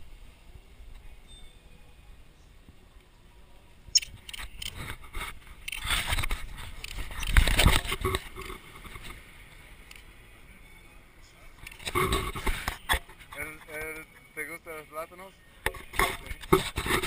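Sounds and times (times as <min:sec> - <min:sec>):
sharp click: 0:04.0 - 0:04.7
camera handling noise: 0:04.0 - 0:09.2.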